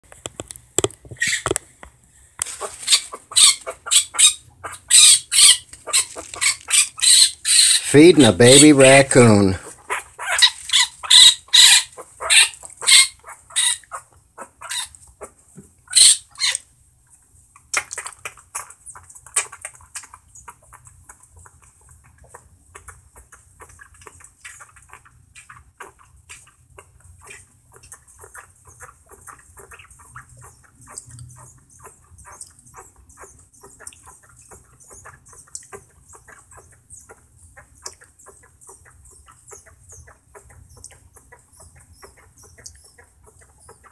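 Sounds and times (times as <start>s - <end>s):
baby raccoon crying: 2.8s - 14.9s
raccoon suckling at a bottle: 17.5s - 29.8s.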